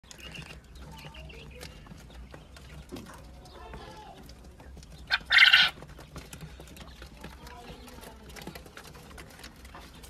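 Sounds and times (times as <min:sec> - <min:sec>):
quail calling softly: 0:05.1 - 0:05.8.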